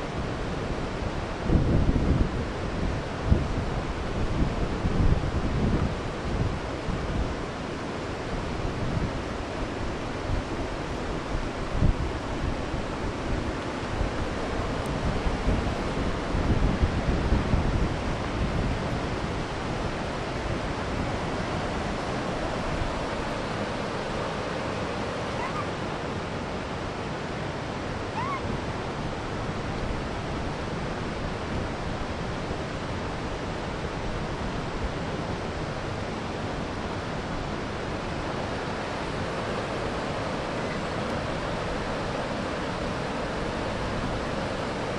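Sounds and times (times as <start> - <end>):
river rushing: 0.0 - 44.9
faint short chirps: 25.4 - 25.7.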